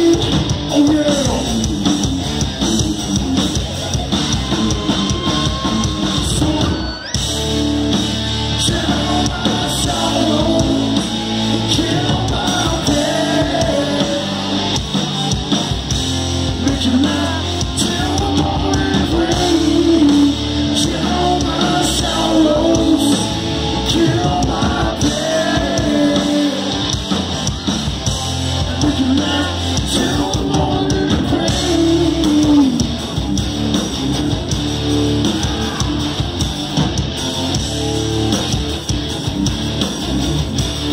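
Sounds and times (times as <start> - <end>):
live hard rock band: 0.0 - 40.9
person singing and shouting: 4.3 - 7.2, 8.5 - 15.6, 16.6 - 32.9.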